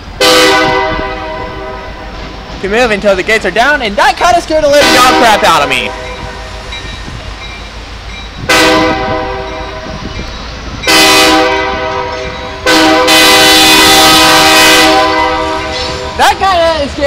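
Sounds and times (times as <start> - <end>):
locomotive air horn blasts: 0.2 - 2.2, 4.7 - 6.6, 8.4 - 10.0, 10.8 - 16.2.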